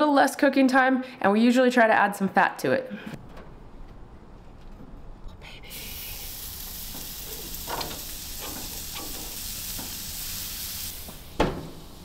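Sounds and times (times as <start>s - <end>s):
meat patties sizzling on grill: 5.7s - 12.0s
patties laid on grill: 5.7s - 12.0s.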